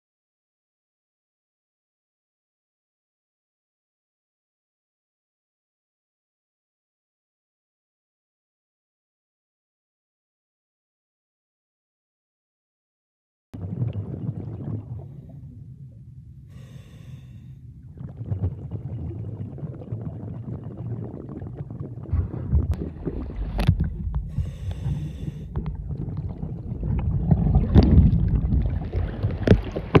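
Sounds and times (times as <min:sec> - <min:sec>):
bubbles crackling: 0:13.6 - 0:15.6, 0:17.8 - 0:30.0
water splashes: 0:13.6 - 0:15.6, 0:16.5 - 0:30.0
underwater rumble of moving water: 0:13.6 - 0:30.0
breath hiss: 0:16.5 - 0:17.6, 0:24.2 - 0:25.6.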